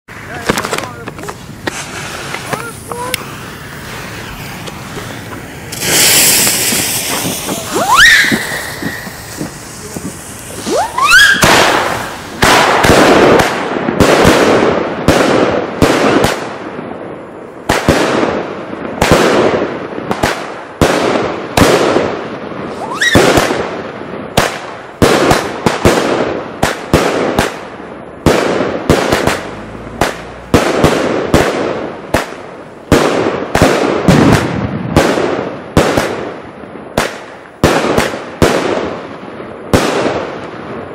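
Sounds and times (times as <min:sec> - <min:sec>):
firework bangs echoing: 0:00.1 - 0:40.9
rising firework whistles: 0:01.2 - 0:13.6, 0:22.6 - 0:23.7, 0:28.2 - 0:33.2.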